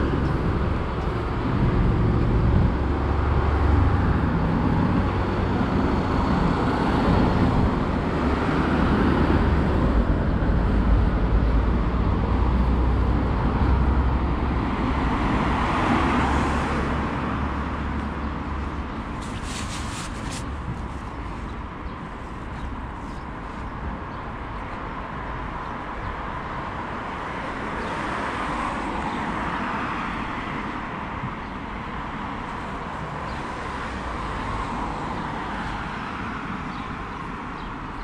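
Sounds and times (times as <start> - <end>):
road traffic passing: 0.0 - 38.0.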